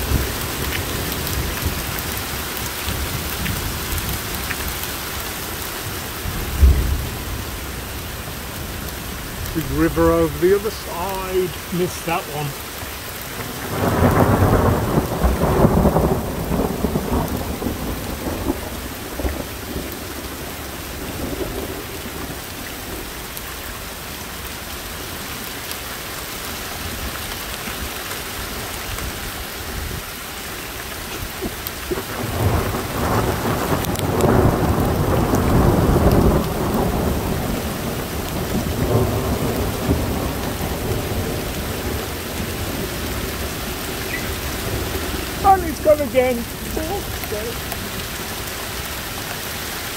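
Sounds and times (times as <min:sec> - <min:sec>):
steady rain: 0:00.0 - 0:49.9
thunder rumbling: 0:05.9 - 0:23.0, 0:31.3 - 0:48.4.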